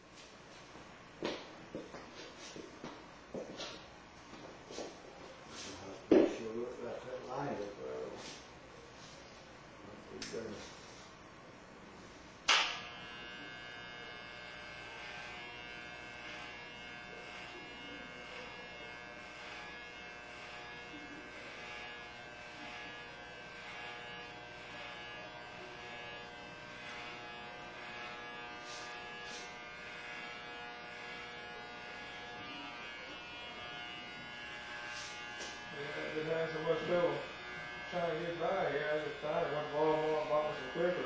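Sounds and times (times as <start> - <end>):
electric hair clippers buzzing: 12.4 - 41.0
hair clippers switch click: 12.5 - 12.9.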